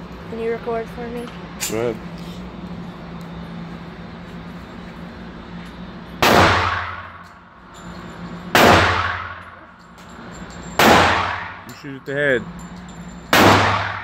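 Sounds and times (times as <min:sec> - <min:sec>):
pistol shots echoing indoors: 0:08.6 - 0:09.4, 0:13.4 - 0:14.0.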